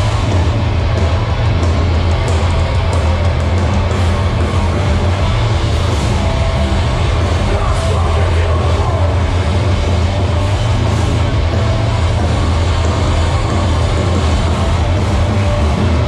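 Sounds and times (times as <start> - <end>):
distorted guitars: 0.0 - 16.0
drums: 0.0 - 16.0.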